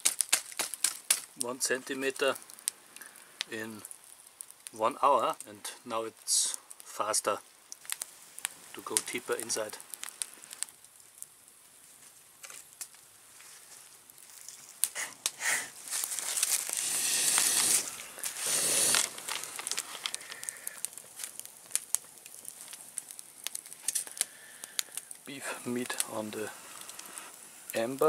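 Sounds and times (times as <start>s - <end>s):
sharp pops and snaps: 0.0s - 28.0s
wood fire crackling: 0.0s - 28.0s.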